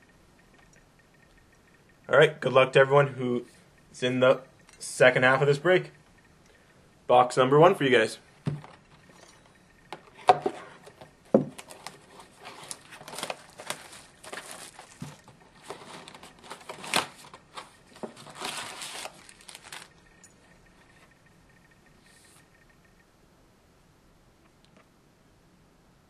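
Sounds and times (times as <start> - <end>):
wrapping crinkling and tearing: 11.6 - 20.0.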